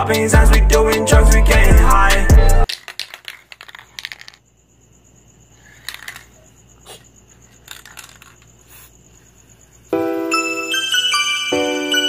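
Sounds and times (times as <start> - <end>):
faint handling sounds: 2.7 - 4.5, 5.5 - 10.0.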